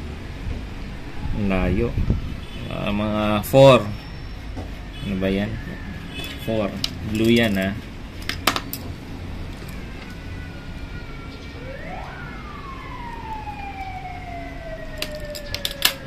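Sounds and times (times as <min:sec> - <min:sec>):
siren wailing: 0:09.5 - 0:16.0.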